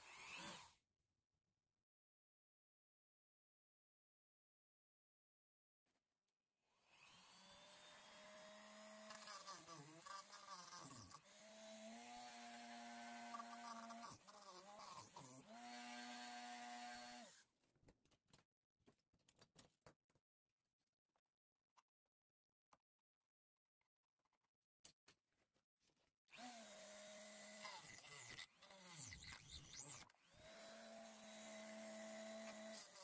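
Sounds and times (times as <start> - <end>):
rotary tool cutting whine: 0.0 - 0.8, 6.9 - 17.4, 26.3 - 33.0.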